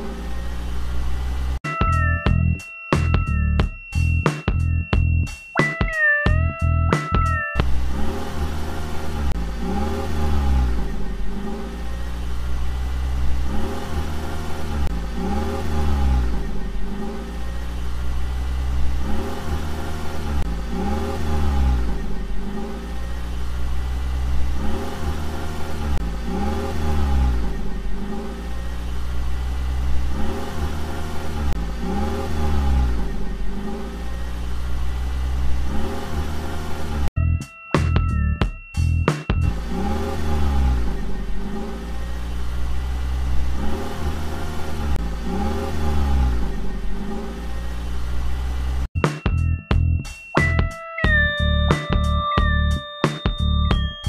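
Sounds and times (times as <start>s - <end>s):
car engine revving: 0.0s - 1.6s, 7.6s - 37.2s, 39.4s - 49.0s.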